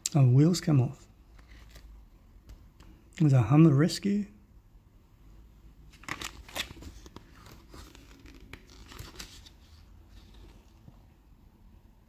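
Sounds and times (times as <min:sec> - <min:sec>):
paper pages turning: 0:01.3 - 0:02.0, 0:05.9 - 0:11.0.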